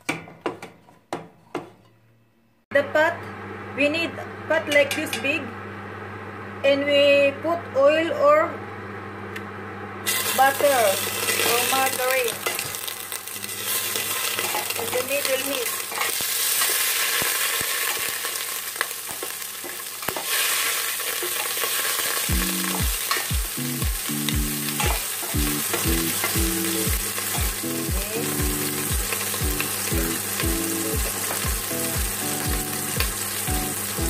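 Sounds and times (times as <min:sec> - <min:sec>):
fat sizzling in a pot: 0:10.0 - 0:34.0
background music with steady beat: 0:22.3 - 0:34.0.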